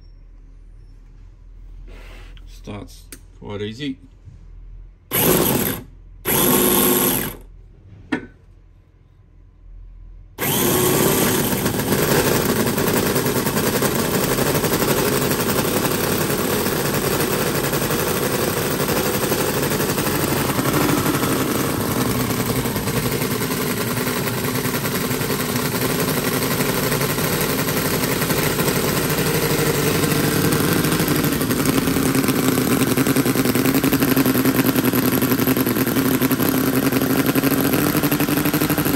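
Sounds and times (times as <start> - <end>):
engine bursts: 5.0 - 7.6, 10.1 - 38.9
model petrol engine running: 5.1 - 7.5, 10.4 - 38.9.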